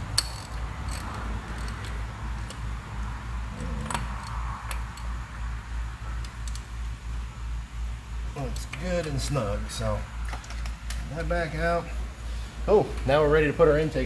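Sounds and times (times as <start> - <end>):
ratchet clicking: 0.0 - 2.6
steady low hum: 0.0 - 14.0.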